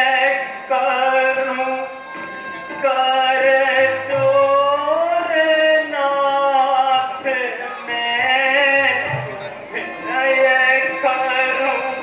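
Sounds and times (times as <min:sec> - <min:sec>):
musical accompaniment: 0:00.0 - 0:12.0.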